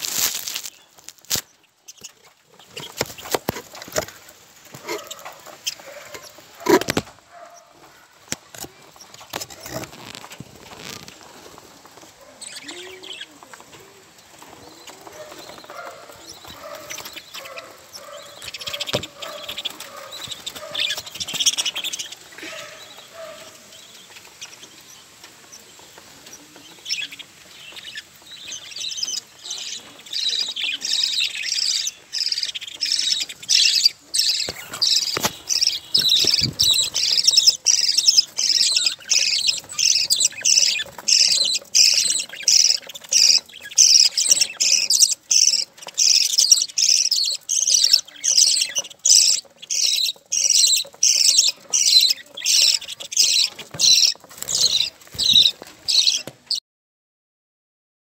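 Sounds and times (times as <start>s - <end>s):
budgerigars chirping: 0.2s - 11.1s, 14.4s - 56.6s.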